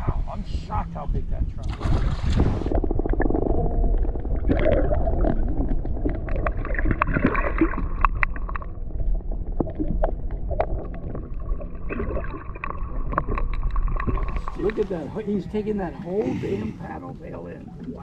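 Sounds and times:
underwater rumbling and gurgling: 0:00.0 - 0:18.0
sharp underwater clicks: 0:01.6 - 0:08.8, 0:09.6 - 0:14.9.

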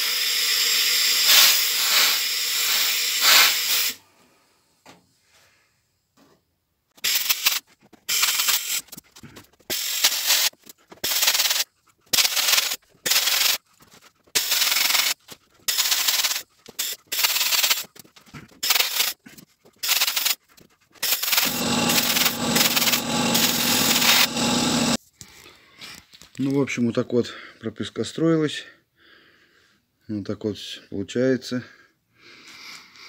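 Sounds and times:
sandblast gun hissing: 0:00.0 - 0:04.0, 0:07.0 - 0:08.8, 0:09.7 - 0:13.6, 0:14.4 - 0:17.9, 0:18.6 - 0:19.2, 0:19.8 - 0:20.4, 0:21.0 - 0:25.0
steady low hum: 0:21.2 - 0:25.0.

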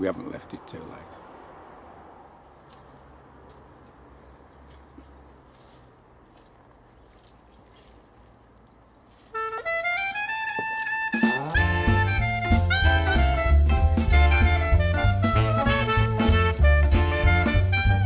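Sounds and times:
jazz background music: 0:09.3 - 0:18.0.

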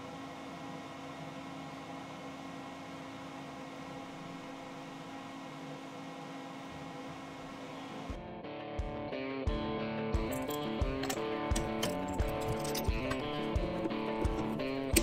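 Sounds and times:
stepper motors whining: 0:10.5 - 0:15.0.

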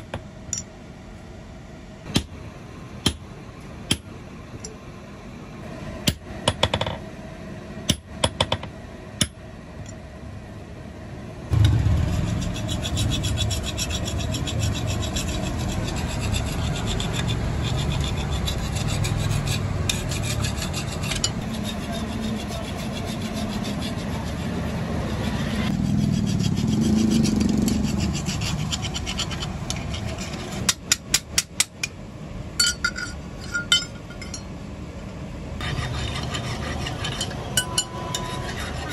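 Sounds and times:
metal file rasping on steel: 0:11.8 - 0:31.0, 0:35.6 - 0:38.9.

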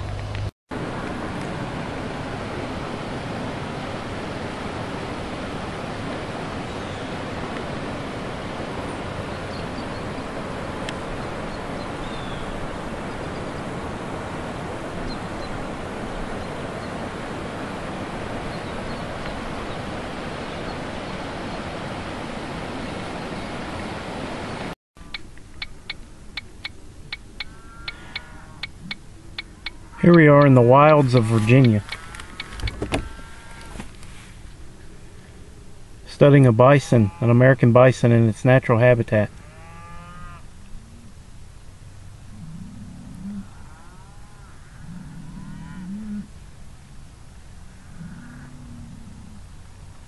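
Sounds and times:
river water rushing: 0:00.8 - 0:24.8, 0:29.4 - 0:34.6.

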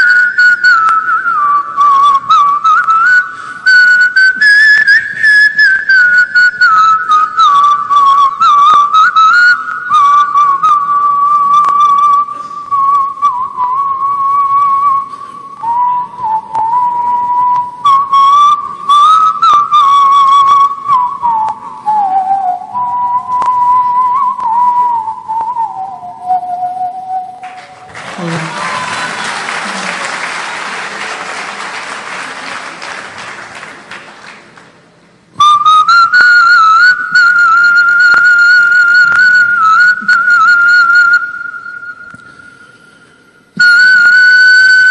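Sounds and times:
man whistling long note: 0:00.0 - 0:30.2, 0:35.3 - 0:44.9
applause: 0:27.4 - 0:34.9.

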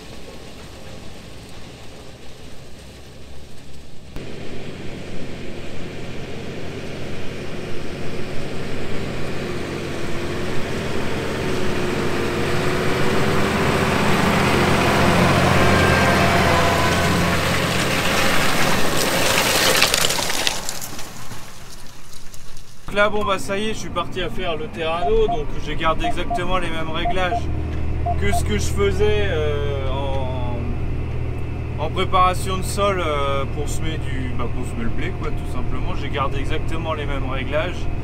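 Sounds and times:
tractor engine drone: 0:00.0 - 0:18.6, 0:24.6 - 0:38.0.

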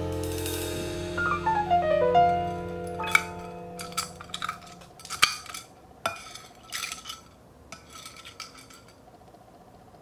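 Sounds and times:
plastic spoon scraping a plate: 0:03.8 - 0:09.0.

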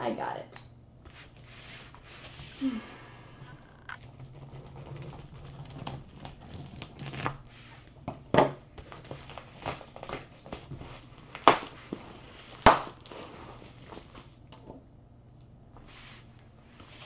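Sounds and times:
bubble wrap crinkling and crackling: 0:03.7 - 0:08.0, 0:08.7 - 0:14.7.

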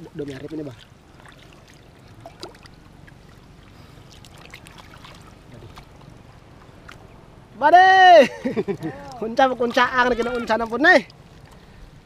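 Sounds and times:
small splashes: 0:00.0 - 0:07.2
muddy water sloshing: 0:00.0 - 0:07.6, 0:08.3 - 0:12.0.

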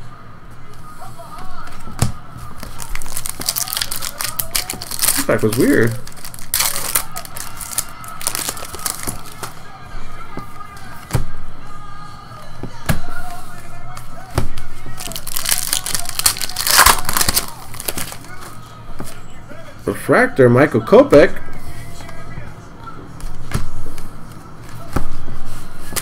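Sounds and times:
faint background music: 0:00.0 - 0:26.0
foil wrappers crinkling and tearing: 0:02.5 - 0:09.6, 0:14.6 - 0:18.6.

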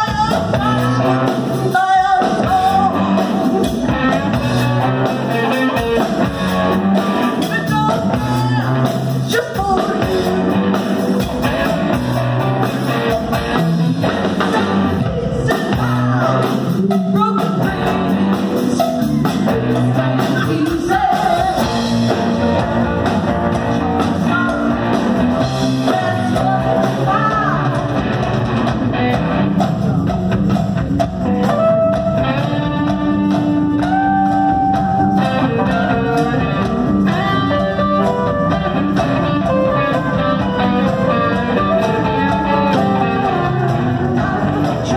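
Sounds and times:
woman singing: 0:00.0 - 0:03.4, 0:07.4 - 0:10.3, 0:14.3 - 0:21.9, 0:24.0 - 0:27.9, 0:43.0 - 0:44.9
drums: 0:00.0 - 0:44.9
electric guitar: 0:00.0 - 0:44.9.

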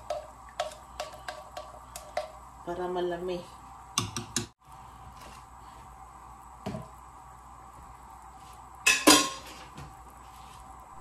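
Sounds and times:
steady background hum: 0:00.0 - 0:11.0
cookware metallic clatter: 0:08.9 - 0:09.6.

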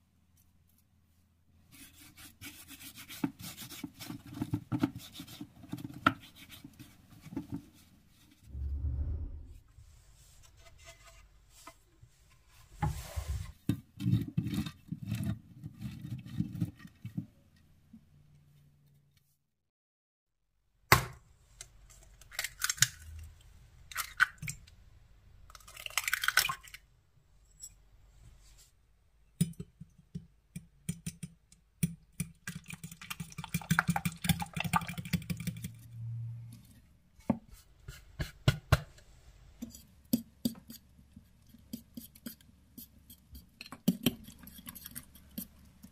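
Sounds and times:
eggs cracking: 0:22.0 - 0:24.8, 0:25.5 - 0:26.9
fork beating eggs against glass: 0:29.4 - 0:35.8.

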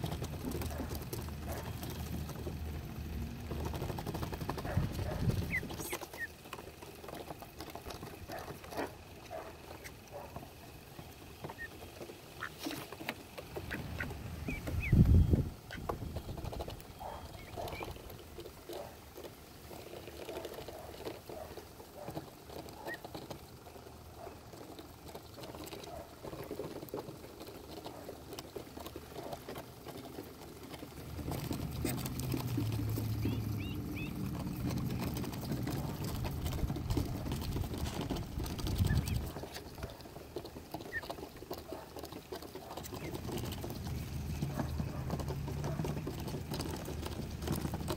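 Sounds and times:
duckling peeps: 0:03.5 - 0:19.0, 0:19.7 - 0:23.4, 0:31.3 - 0:46.8.

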